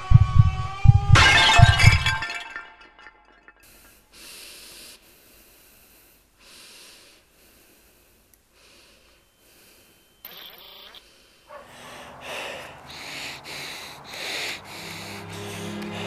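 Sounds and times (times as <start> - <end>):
person breathing heavily: 3.6 - 10.2, 11.0 - 16.0.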